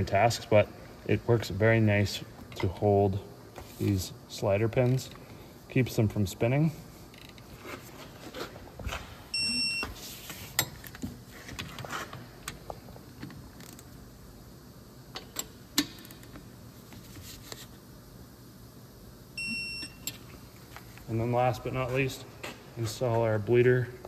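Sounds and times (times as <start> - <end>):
torque wrench beep: 9.3 - 9.9, 19.4 - 20.1.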